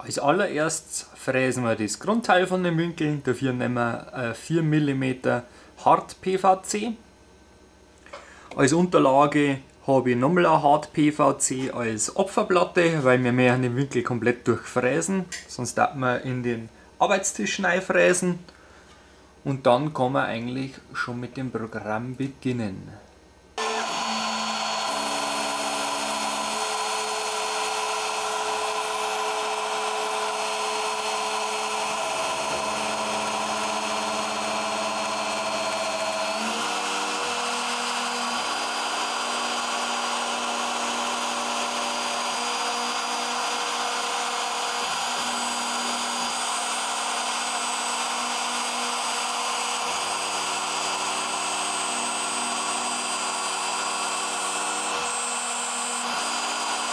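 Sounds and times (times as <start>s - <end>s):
milling machine cutting plastic: 23.6s - 56.9s.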